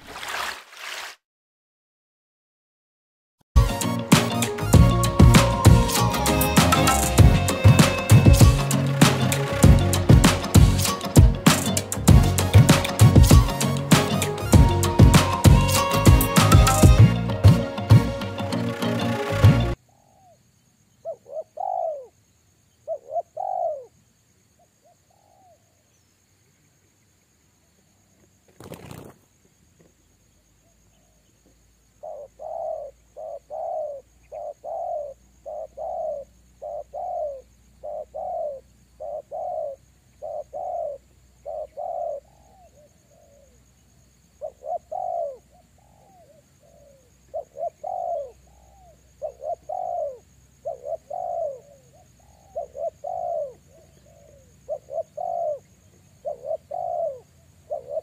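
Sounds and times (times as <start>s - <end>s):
wing flapping: 0.0s - 1.2s, 28.4s - 29.5s
dove cooing: 21.0s - 22.2s, 22.9s - 23.9s, 32.0s - 43.6s, 44.4s - 58.0s.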